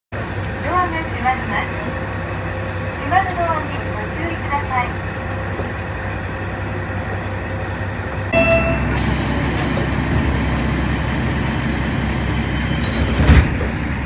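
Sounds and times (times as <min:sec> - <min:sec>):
diesel railcar engine running: 0:00.2 - 0:14.0
brief tone: 0:08.4 - 0:09.3.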